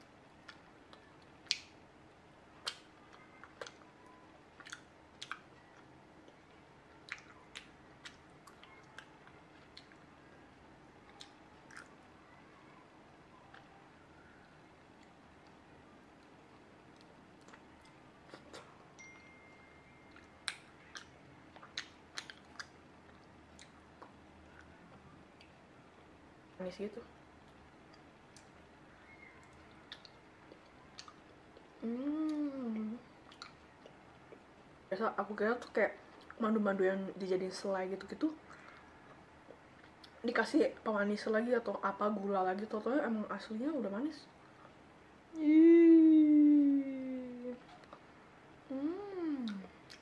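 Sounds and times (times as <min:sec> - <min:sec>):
mouth chewing wet clicks: 0:00.4 - 0:01.8, 0:02.6 - 0:03.9, 0:04.6 - 0:10.1, 0:11.0 - 0:12.0, 0:20.1 - 0:25.6, 0:27.4 - 0:34.5, 0:38.4 - 0:40.2, 0:49.4 - 0:50.0.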